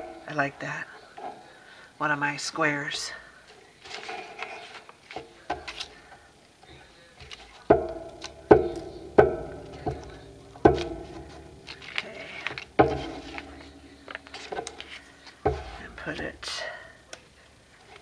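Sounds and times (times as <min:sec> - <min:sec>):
paper rustling: 0:03.5 - 0:09.0, 0:10.6 - 0:16.3
knocks on table: 0:07.7 - 0:16.1.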